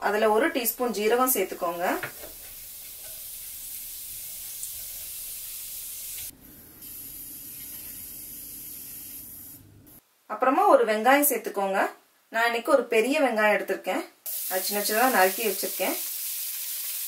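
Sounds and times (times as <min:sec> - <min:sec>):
seeds sizzling in hot oil: 0:00.4 - 0:09.6, 0:14.3 - 0:17.0.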